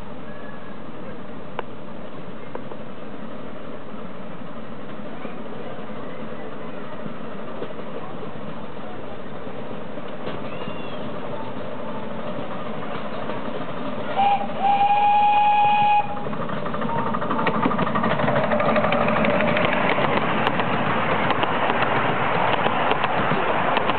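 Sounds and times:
train clattering past: 1.6 - 23.9
steam locomotive whistle: 14.1 - 16.3.

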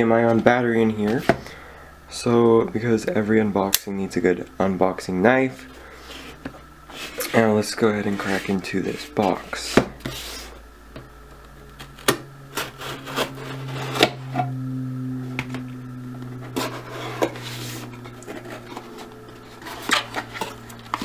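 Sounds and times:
low steady hum: 0.0 - 21.0
cardboard flaps scraping: 6.0 - 10.6, 11.8 - 14.3, 16.4 - 21.0.

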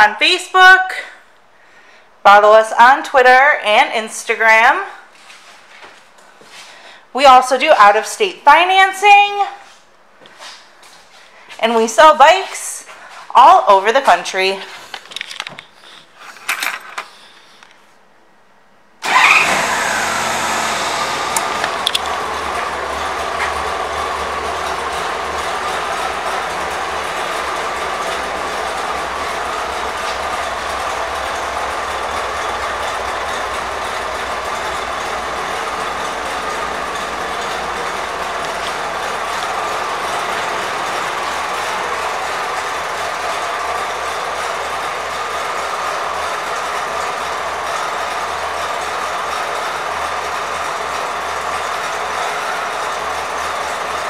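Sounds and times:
motorcycle engine idling: 19.9 - 54.0.

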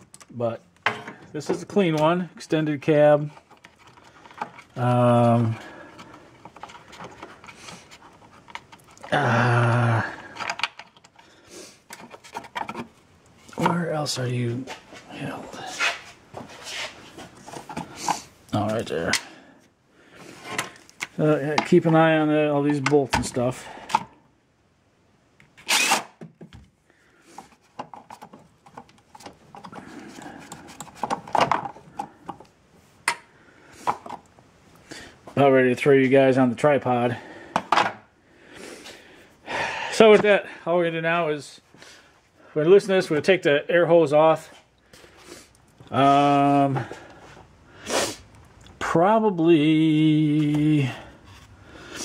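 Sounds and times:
engine parts handled by hand: 0.0 - 24.2, 26.2 - 35.4, 37.5 - 38.1
man grunting: 9.1 - 10.3
impact driver burst: 25.6 - 26.2.

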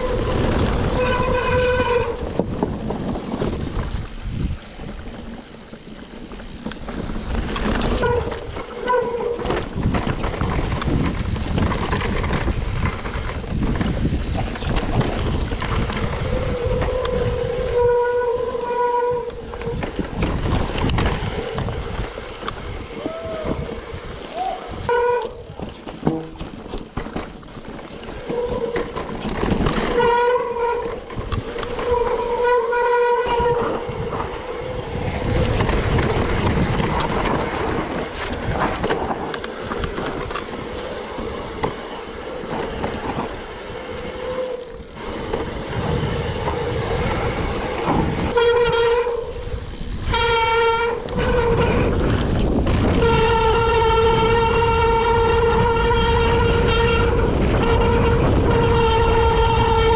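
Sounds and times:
bike rumble and rushing: 0.0 - 59.9
bike whine: 0.0 - 59.9.

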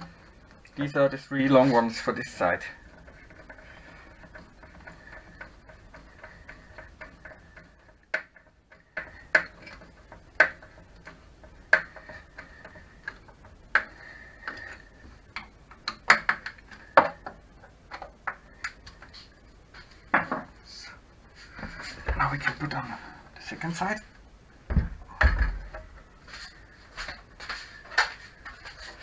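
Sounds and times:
hard plastic clicks and knocks: 2.9 - 19.1.

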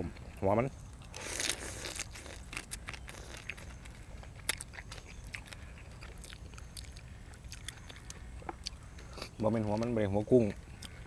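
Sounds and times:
person chewing food: 0.1 - 9.4.

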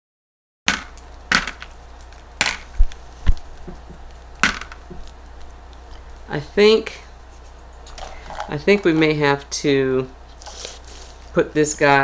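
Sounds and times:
sharp clicks and cracks: 0.7 - 6.3.

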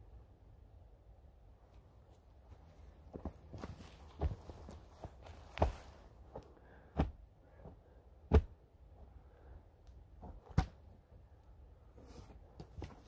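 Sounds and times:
wooden poles thudding into ground: 8.2 - 8.6.

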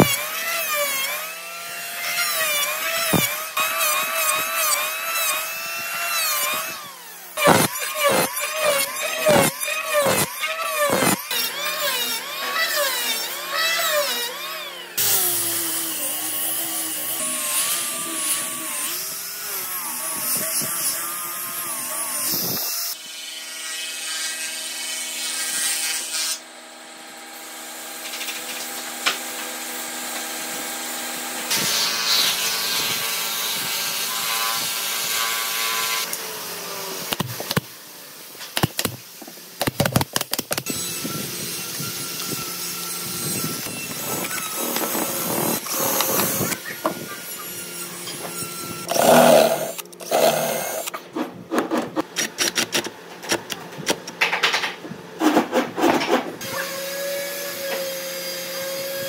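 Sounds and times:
electric hand planer cutting wood: 0.0 - 37.7, 40.1 - 52.8
power tools with pitched hum: 0.0 - 59.0.

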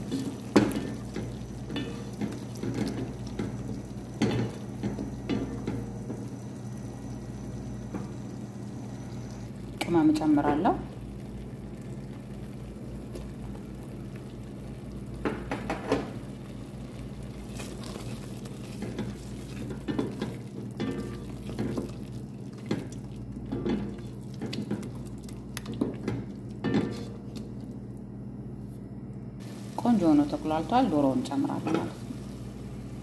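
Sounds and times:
wooden spoon stirring sauce: 17.4 - 27.6.

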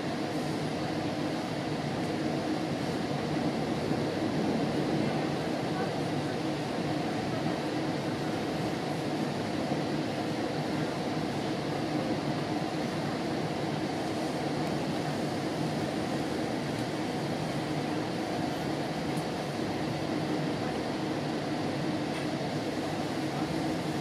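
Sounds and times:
train wheels on track: 21.2 - 24.0.

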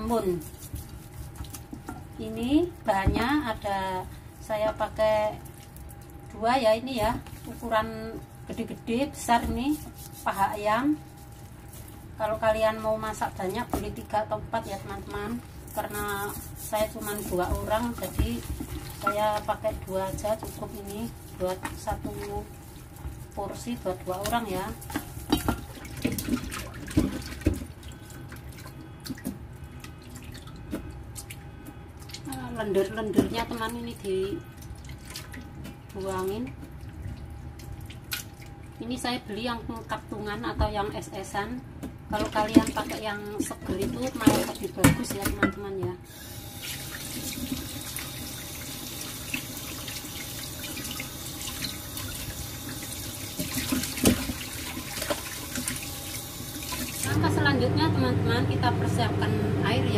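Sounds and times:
chicken being rubbed by hand: 0.0 - 1.8, 9.5 - 12.0, 14.6 - 18.9, 19.6 - 24.8
water splashing in a bowl: 14.6 - 32.7, 33.3 - 38.8, 46.6 - 57.2
tap water running into steel bowl: 46.1 - 57.2.

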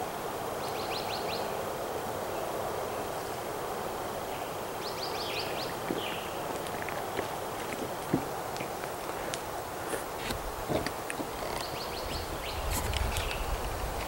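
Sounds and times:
outdoor background noise: 0.0 - 14.0
bird chirping: 4.3 - 9.3, 10.7 - 13.6.

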